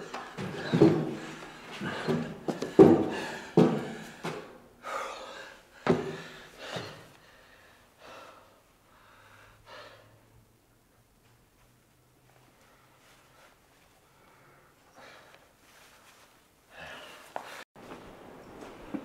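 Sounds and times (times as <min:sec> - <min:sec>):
man gasping and panting: 0:00.0 - 0:10.2.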